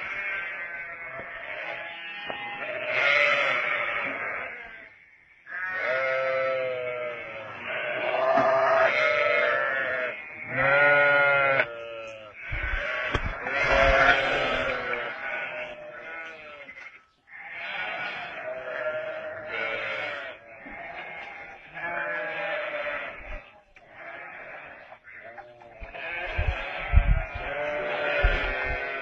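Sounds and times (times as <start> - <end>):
lamb bleating: 0.0 - 29.0
low thumps: 25.8 - 29.0.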